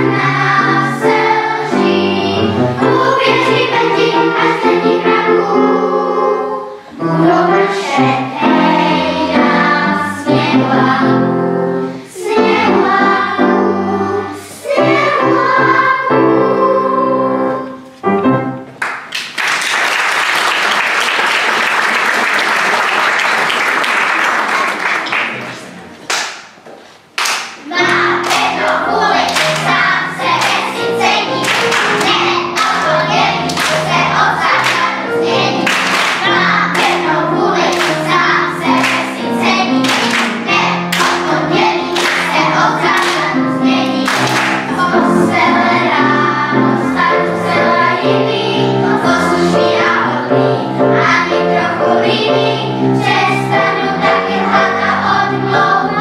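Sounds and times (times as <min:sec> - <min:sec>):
audience applause: 0:18.9 - 0:25.8.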